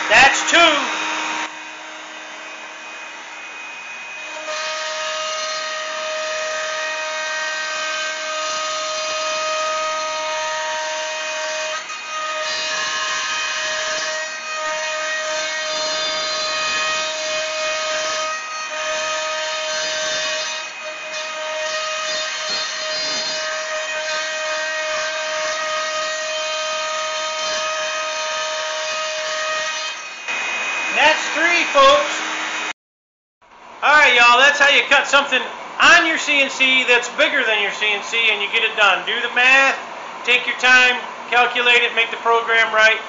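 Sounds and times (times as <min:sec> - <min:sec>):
router whining cutting wood: 0:00.0 - 0:32.8.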